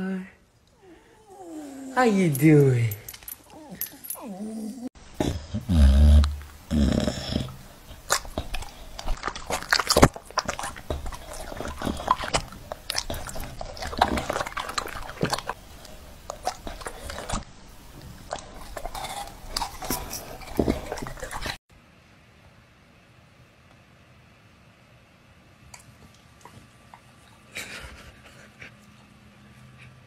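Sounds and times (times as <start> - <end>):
dog chewing and licking: 7.9 - 21.6.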